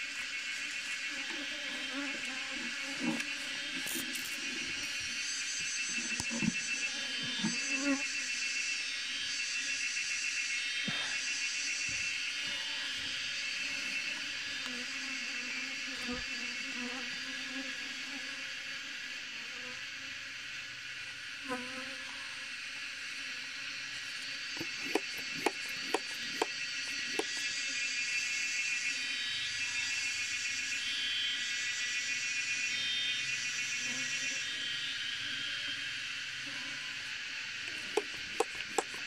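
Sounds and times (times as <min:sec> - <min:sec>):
bees buzzing: 0:24.5 - 0:28.0, 0:37.7 - 0:39.0.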